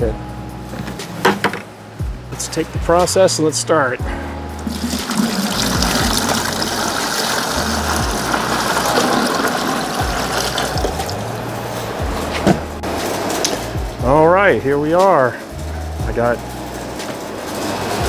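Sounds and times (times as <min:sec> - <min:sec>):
water pouring into bucket: 0:04.6 - 0:11.3.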